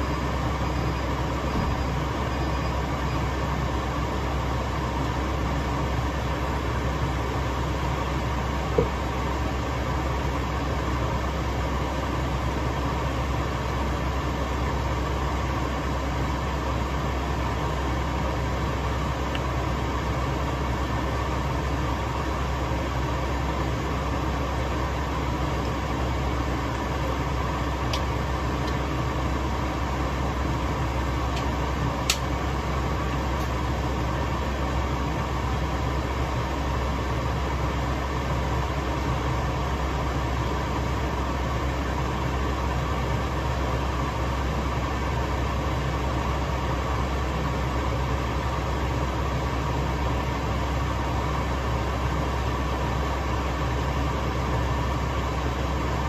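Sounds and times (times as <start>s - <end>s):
gas stove hum and hiss: 0.0s - 56.0s
sharp click: 32.1s - 32.3s.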